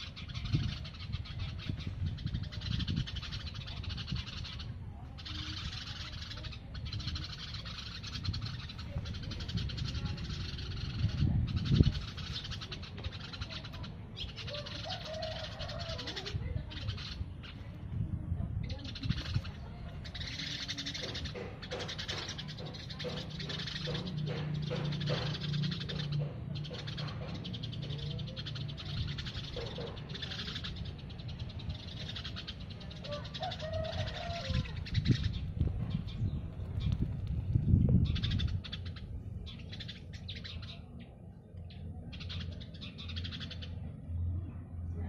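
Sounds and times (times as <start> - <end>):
birds chattering: 0.0 - 45.0
low wavering bird call: 33.0 - 35.1.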